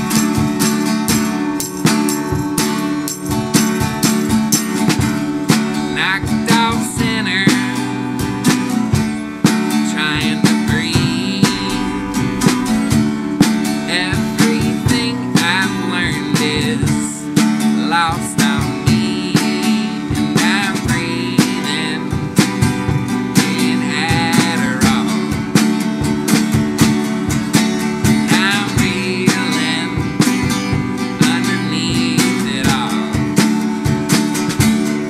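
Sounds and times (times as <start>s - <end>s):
drums played with sticks: 0.0s - 35.0s
strummed acoustic guitar: 0.0s - 35.0s.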